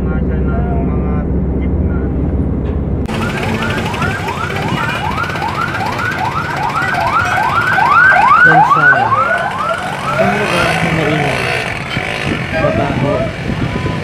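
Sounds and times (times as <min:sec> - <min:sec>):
street traffic: 0:00.0 - 0:14.0
electronic siren sweeping: 0:03.1 - 0:11.9.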